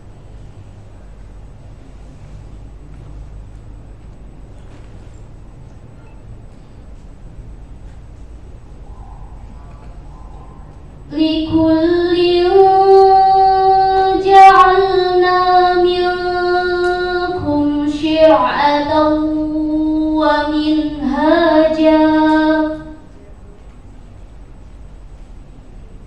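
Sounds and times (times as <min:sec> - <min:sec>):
girl reciting melodically: 0:11.0 - 0:23.1.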